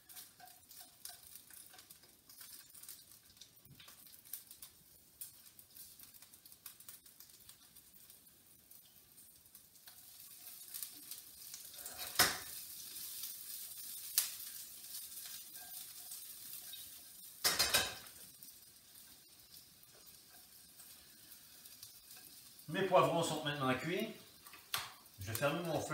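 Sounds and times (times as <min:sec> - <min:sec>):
peppers sizzling in oil: 0:00.0 - 0:25.9
utensil clattering on pan: 0:11.8 - 0:12.6, 0:15.1 - 0:18.2.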